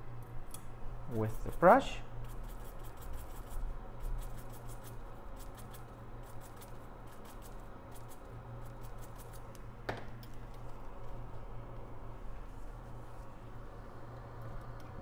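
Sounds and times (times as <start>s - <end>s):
small brush scrubbing chip: 1.1s - 9.6s.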